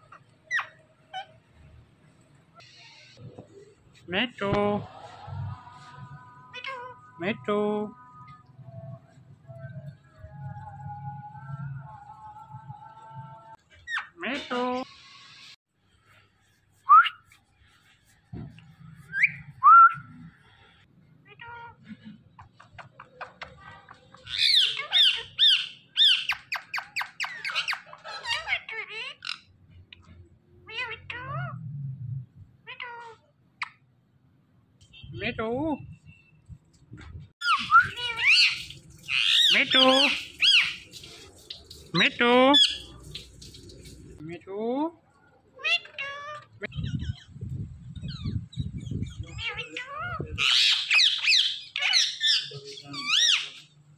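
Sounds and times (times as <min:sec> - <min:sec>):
parrot squawking: 0:00.0 - 0:01.4, 0:06.5 - 0:07.3, 0:24.3 - 0:29.5, 0:30.6 - 0:31.6, 0:37.4 - 0:43.4, 0:45.6 - 0:47.3, 0:49.2 - 0:53.6
parrot chatter: 0:22.4 - 0:29.4, 0:37.4 - 0:44.2, 0:49.3 - 0:53.7.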